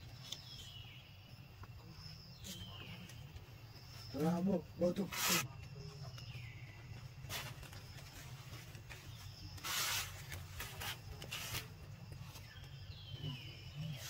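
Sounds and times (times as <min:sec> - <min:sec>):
rustling hisses: 0:05.0 - 0:05.5, 0:09.5 - 0:11.9.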